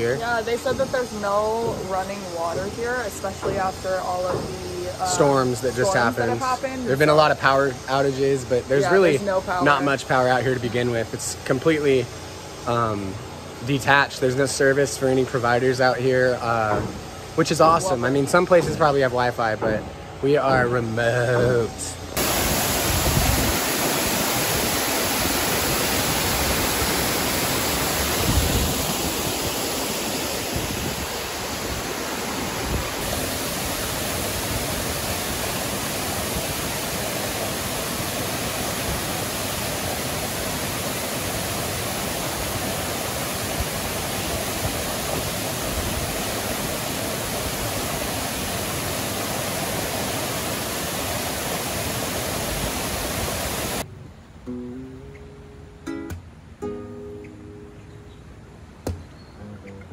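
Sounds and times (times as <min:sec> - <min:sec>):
waterfall rushing: 0:00.0 - 0:11.1, 0:22.0 - 0:53.9
low thumps: 0:00.2 - 0:05.2.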